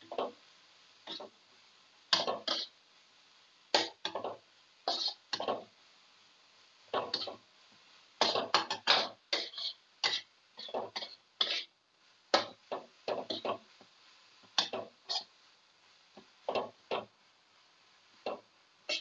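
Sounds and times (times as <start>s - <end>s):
spatula scraping in a wok: 2.1s - 2.8s, 3.8s - 5.8s, 6.9s - 7.5s, 8.2s - 13.8s, 14.5s - 15.4s, 18.3s - 19.0s.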